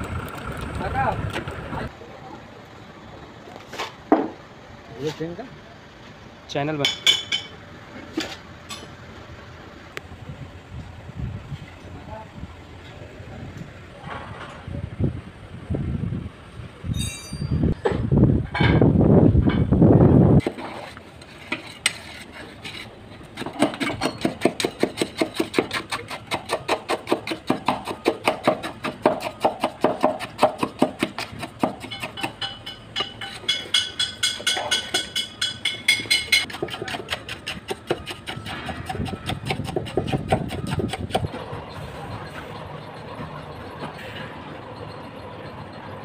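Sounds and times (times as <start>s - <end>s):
steel rod tamping concrete: 20.4s - 41.4s.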